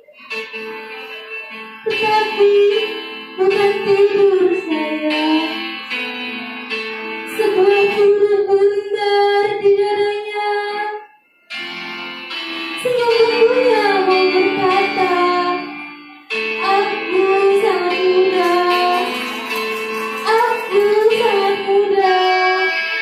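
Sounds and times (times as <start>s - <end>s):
instrumental accompaniment: 10.8s - 23.0s.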